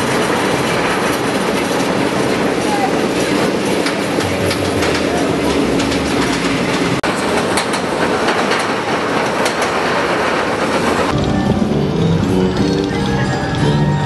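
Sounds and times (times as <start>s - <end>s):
roller coaster rumbling and clattering: 0.0s - 14.0s.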